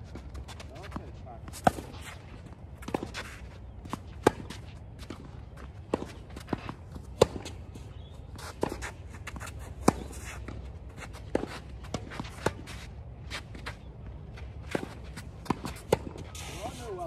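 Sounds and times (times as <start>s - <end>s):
footsteps scuffing on hard court: 0.0s - 17.0s
tennis ball struck by racquets: 1.5s - 2.0s, 3.9s - 7.6s, 14.7s - 16.6s.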